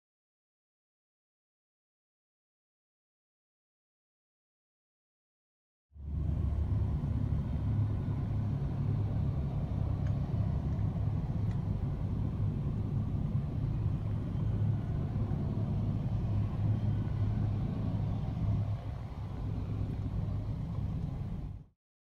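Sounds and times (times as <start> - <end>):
diesel train engines rumbling: 6.0 - 21.7.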